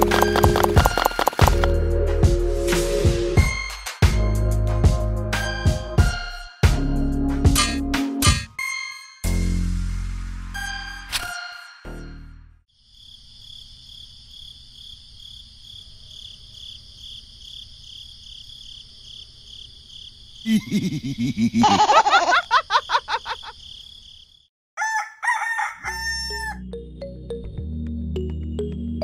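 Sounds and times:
background music: 0:00.0 - 0:12.6, 0:26.1 - 0:29.0
rooster crowing: 0:24.8 - 0:26.6.

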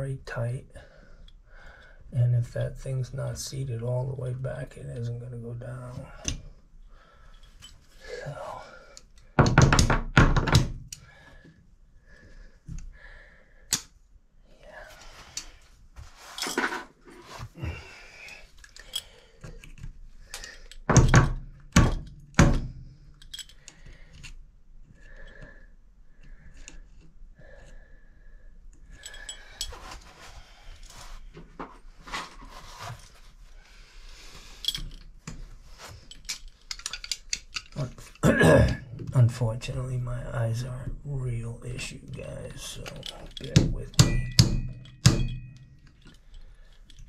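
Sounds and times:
metal clicks and scraping: 0:34.6 - 0:38.2.

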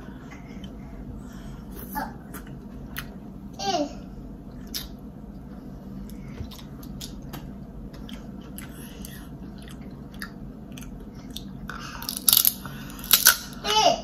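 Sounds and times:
chewing and wet mouth noises: 0:06.0 - 0:13.4.

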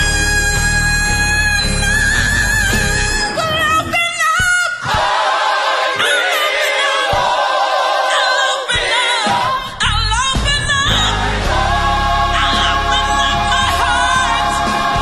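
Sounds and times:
band accompaniment: 0:00.0 - 0:03.6, 0:08.9 - 0:15.0
lead singer: 0:00.0 - 0:05.2, 0:08.0 - 0:15.0
gospel choir singing: 0:04.7 - 0:09.8, 0:10.5 - 0:15.0.

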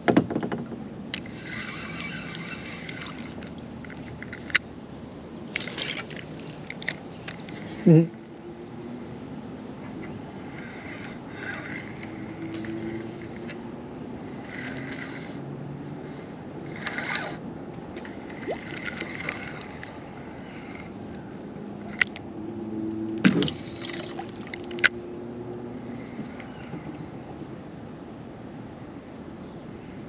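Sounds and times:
kayak paddle splashing in water: 0:18.0 - 0:20.0, 0:23.2 - 0:24.8.

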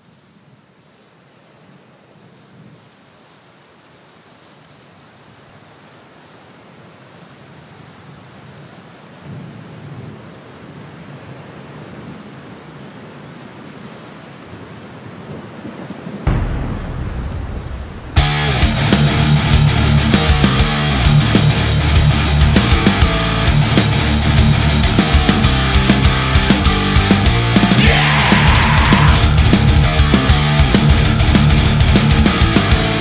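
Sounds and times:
heavy rain splashing into puddle: 0:16.0 - 0:20.0
deep rumble: 0:16.3 - 0:33.0.

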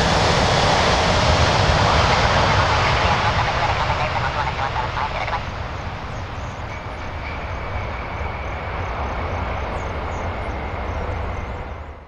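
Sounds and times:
jet engines rushing: 0:00.0 - 0:12.0
thin steady whine: 0:01.6 - 0:09.8.

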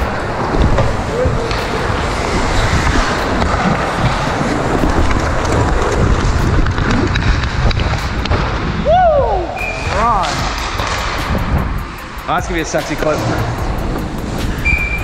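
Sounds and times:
ice skate blades scraping: 0:00.0 - 0:08.7
wind rushing over microphone: 0:00.0 - 0:15.0
person shouting: 0:08.8 - 0:10.2.

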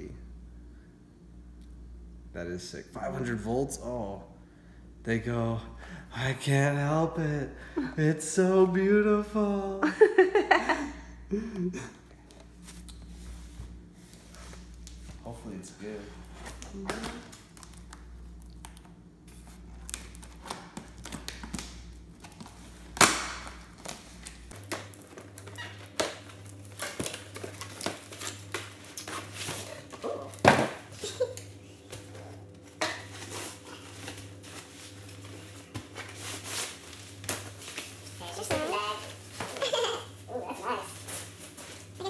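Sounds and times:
cardboard and plastic rustling: 0:12.4 - 0:42.0.

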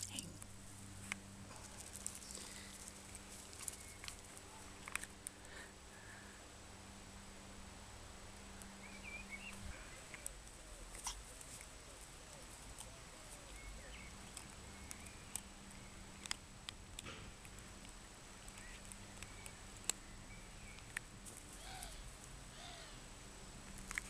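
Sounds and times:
dog gnawing a bone: 0:00.4 - 0:05.3, 0:10.0 - 0:20.1, 0:23.6 - 0:24.0
birds chirping: 0:01.5 - 0:06.4, 0:08.6 - 0:16.3, 0:18.4 - 0:23.1.

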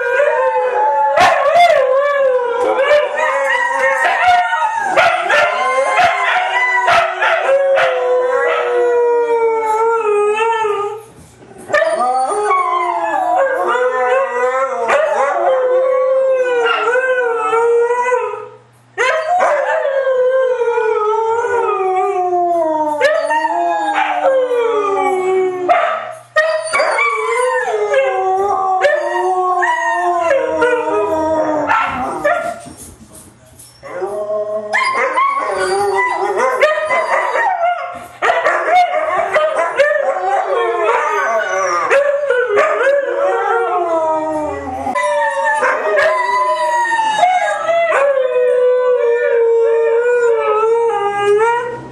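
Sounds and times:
huskies howling: 0:00.0 - 0:11.0, 0:26.6 - 0:32.6, 0:33.9 - 0:51.9.

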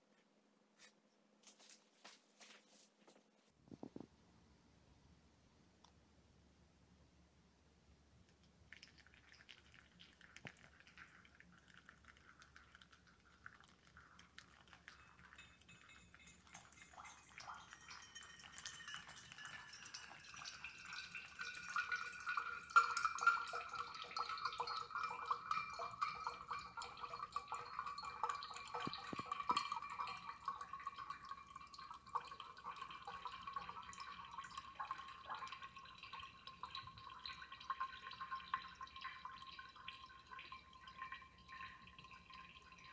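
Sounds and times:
coffee trickling and dripping: 0:08.2 - 0:42.9
hot water pouring from kettle: 0:08.6 - 0:42.9.

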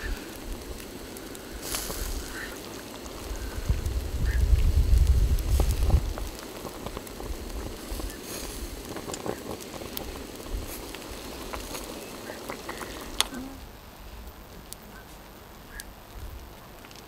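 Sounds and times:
small clicks: 0:10.8 - 0:13.4.

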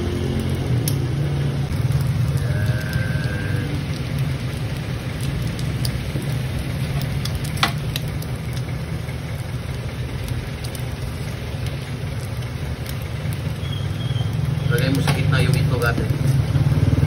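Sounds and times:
food sizzling on griddle: 0:00.0 - 0:17.0.

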